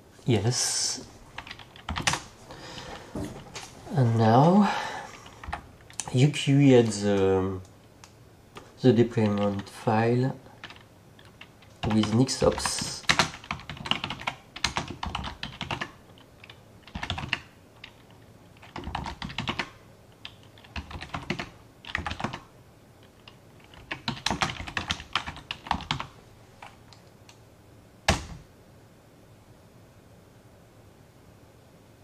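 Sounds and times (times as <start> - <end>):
computer keyboard typing: 1.4 - 2.3, 9.2 - 9.7, 10.6 - 26.8.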